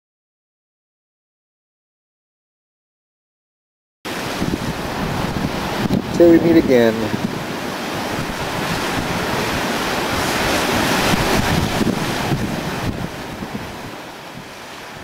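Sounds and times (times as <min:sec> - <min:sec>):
surf washing over rocks: 0:04.1 - 0:15.0
wind buffeting microphone: 0:04.1 - 0:15.0.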